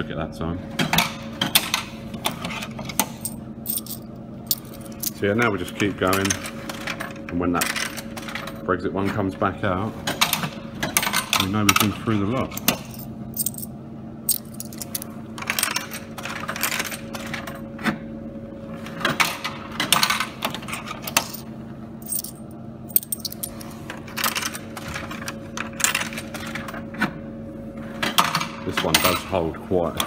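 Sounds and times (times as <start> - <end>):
steady low hum: 0.0 - 26.4
coins clinking in vending machine: 2.8 - 8.6, 10.2 - 17.6, 19.2 - 26.8, 28.2 - 29.4.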